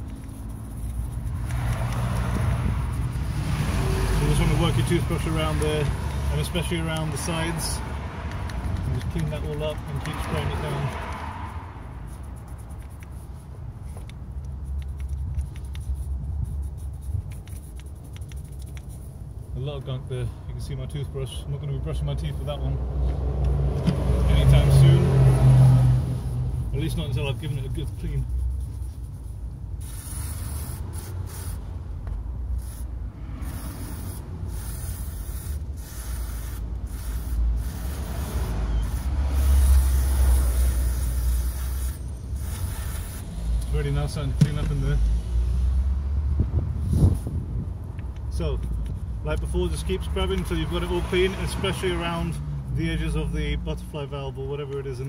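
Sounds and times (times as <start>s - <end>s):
toothbrush scratchy brushing: 0.0s - 5.6s, 8.5s - 19.4s, 26.2s - 31.6s, 32.6s - 43.4s
toothbrush scrubbing metal: 0.0s - 5.6s
steady low rumble: 0.0s - 42.5s
aerosol spray hissing: 29.8s - 31.7s, 32.6s - 43.4s.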